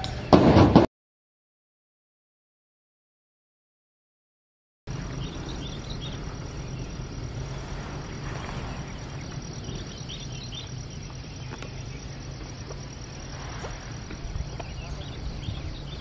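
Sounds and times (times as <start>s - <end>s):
even hiss: 4.9s - 16.0s
high chirping calls: 4.9s - 16.0s
steady low hum: 4.9s - 16.0s.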